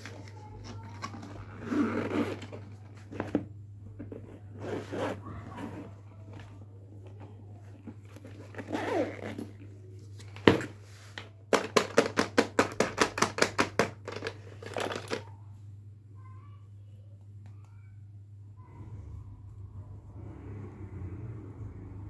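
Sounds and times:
zipper opening: 1.0s - 3.3s, 4.5s - 6.0s, 8.1s - 9.6s
plastic toys rustling: 7.6s - 15.3s.

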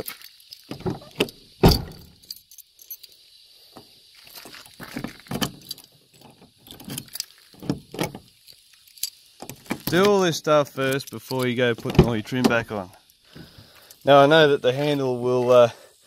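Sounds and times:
keys jangling: 0.0s - 3.4s, 4.3s - 10.1s, 10.7s - 11.8s.

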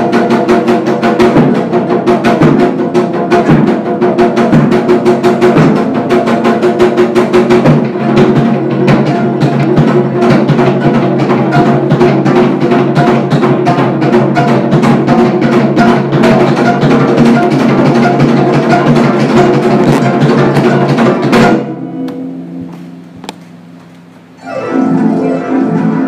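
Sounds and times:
drum beaten with a stick: 0.0s - 26.0s
plucked strings: 7.7s - 26.0s.

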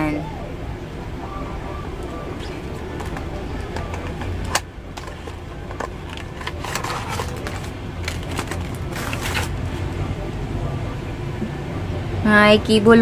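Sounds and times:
steady low hum: 0.0s - 13.0s
plastic packaging rustling: 2.4s - 9.9s.

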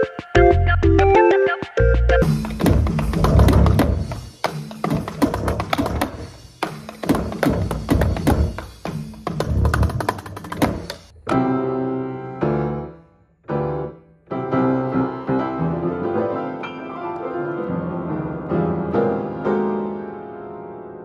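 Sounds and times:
grand piano playing: 10.7s - 21.0s.

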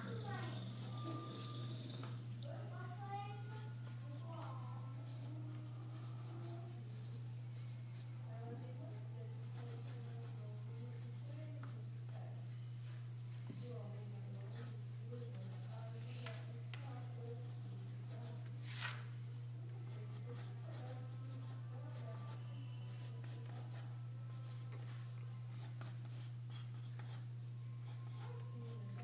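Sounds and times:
steady low hum: 0.0s - 29.0s
pencil scratching on paper: 0.1s - 2.2s, 3.5s - 8.1s, 9.4s - 10.4s, 14.5s - 16.0s, 20.1s - 23.8s, 25.6s - 28.8s.

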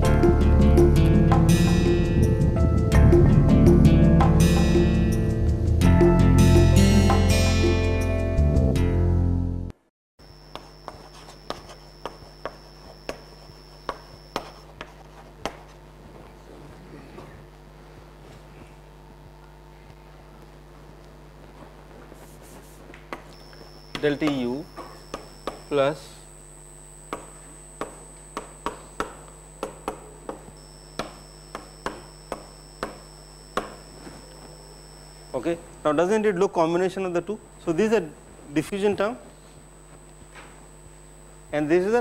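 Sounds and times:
steady low hum: 0.0s - 7.1s, 10.2s - 42.0s
chalk tapping and scraping: 10.5s - 15.8s, 22.1s - 23.3s.

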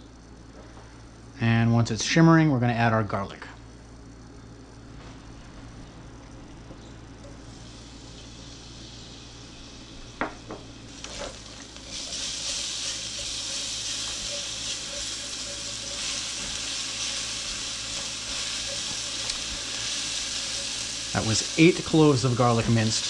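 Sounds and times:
garlic sizzling in oil: 7.4s - 23.0s
spatula stirring in pot: 10.9s - 23.0s.

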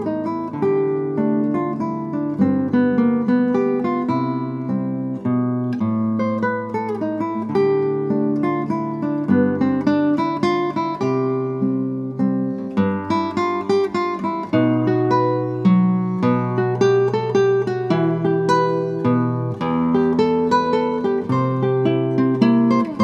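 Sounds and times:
classical guitar fingerpicked: 0.0s - 23.0s.

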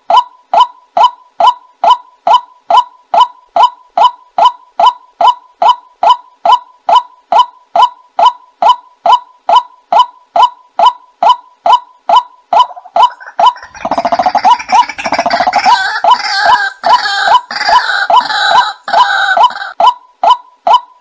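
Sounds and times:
waterhen croaking and chattering: 12.1s - 19.8s.

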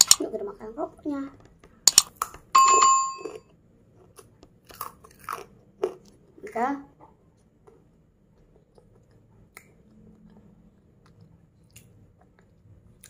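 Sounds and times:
faint chewing of cracker: 3.8s - 6.6s, 7.2s - 13.0s.

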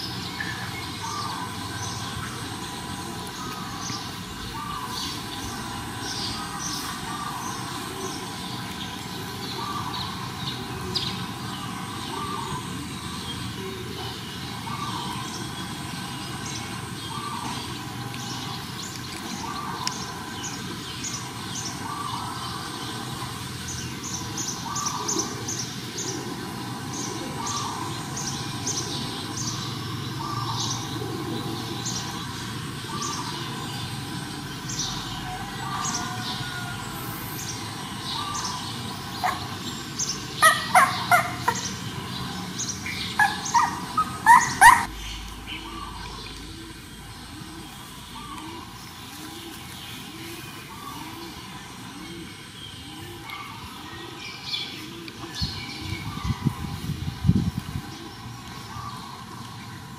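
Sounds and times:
puppies yelping: 38.1s - 41.8s, 42.7s - 46.8s
puppies whimpering and squeaking: 39.2s - 39.5s, 40.4s - 41.8s, 43.0s - 45.0s.

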